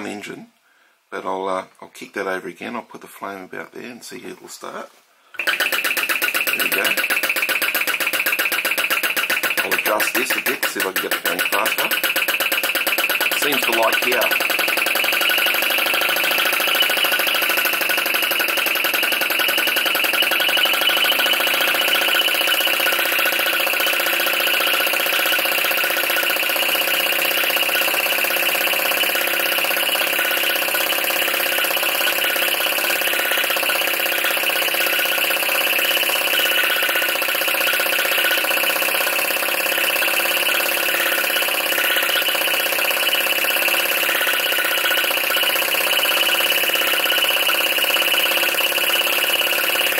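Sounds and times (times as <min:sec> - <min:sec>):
engine mechanical clatter: 0:05.4 - 0:49.9.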